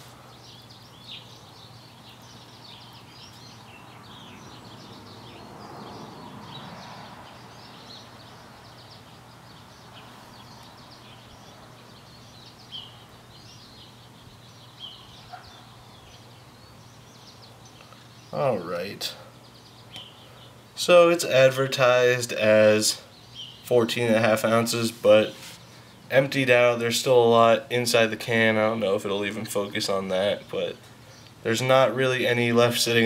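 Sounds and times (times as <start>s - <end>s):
small birds chirping: 0.0s - 33.0s.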